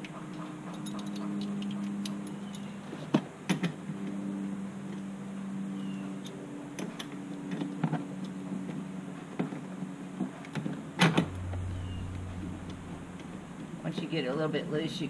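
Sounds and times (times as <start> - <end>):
steady low hum: 3.8 - 15.0.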